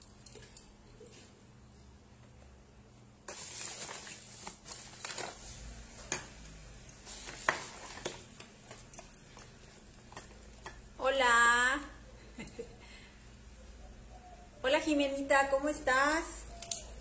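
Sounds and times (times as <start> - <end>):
rustling of handled objects: 3.2 - 11.0.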